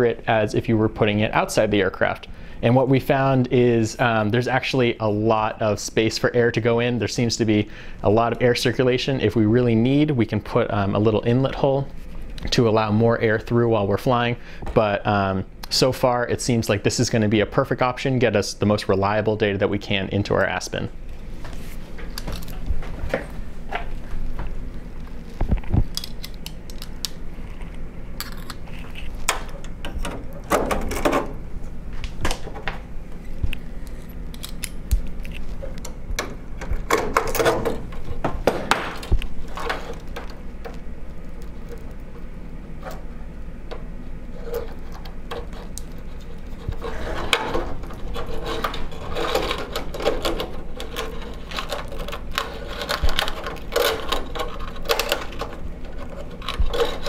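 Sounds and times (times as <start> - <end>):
cables rustling and rubbing: 21.0 - 57.0.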